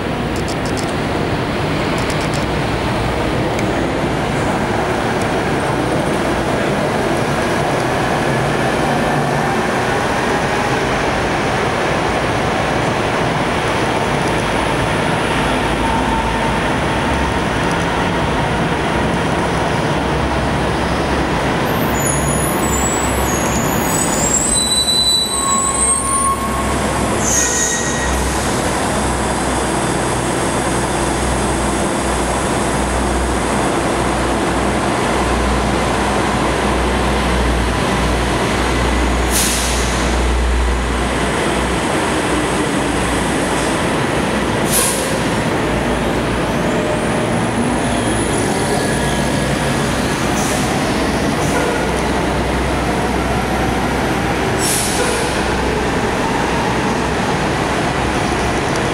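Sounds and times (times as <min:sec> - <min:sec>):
brakes squealing: 0:21.7 - 0:28.5
air brake hisses: 0:39.3 - 0:40.1, 0:44.7 - 0:45.2, 0:54.6 - 0:55.3.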